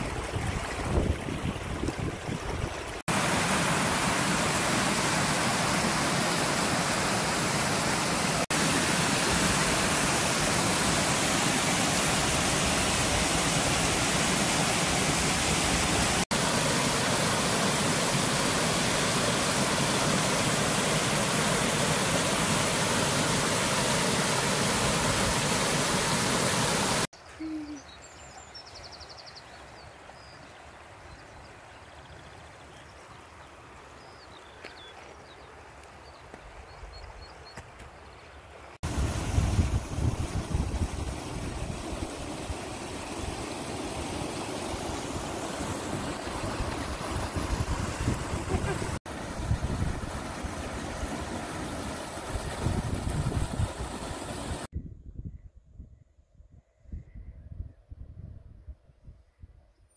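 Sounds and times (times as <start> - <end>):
waterfall roaring: 3.0 - 27.1, 38.8 - 54.7.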